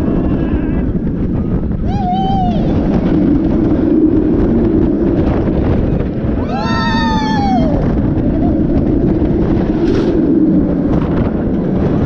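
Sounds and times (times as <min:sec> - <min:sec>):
wind rushing over microphone: 0:00.0 - 0:12.0
person screaming: 0:06.4 - 0:07.8.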